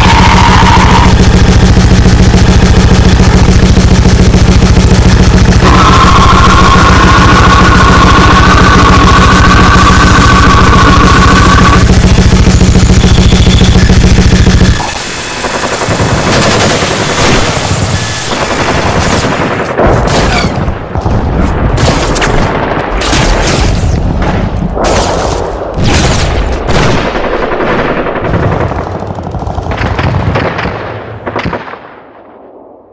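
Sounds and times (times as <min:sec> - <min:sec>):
harsh distorted metal noise: 0:00.0 - 0:19.1
gunfire-like bursts and booms: 0:00.0 - 0:32.9.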